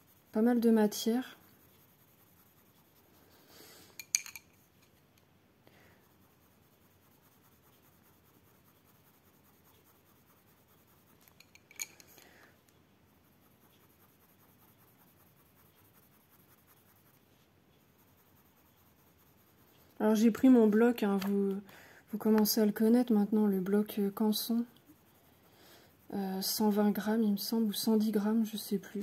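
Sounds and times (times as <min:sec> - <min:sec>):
pencil scratching on paper: 0:00.0 - 0:03.6, 0:06.0 - 0:11.4, 0:13.1 - 0:21.3, 0:22.2 - 0:29.0
pencils clicking when handled: 0:04.0 - 0:04.5, 0:21.1 - 0:21.4.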